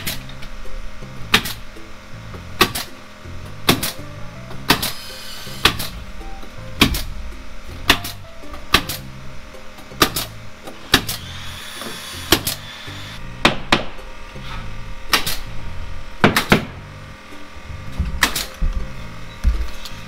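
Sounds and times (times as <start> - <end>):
background music with bass line: 0.0 - 20.0
nail gun shots: 2.6 - 3.0, 3.7 - 4.0, 4.7 - 5.0, 5.6 - 5.9, 7.9 - 9.0, 10.9 - 11.3, 12.3 - 12.6, 15.1 - 15.5, 16.2 - 16.8, 18.2 - 18.5.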